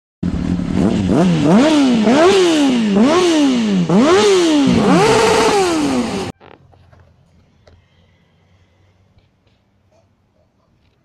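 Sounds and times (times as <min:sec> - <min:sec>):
motorcycle engine revving: 0:00.2 - 0:06.6.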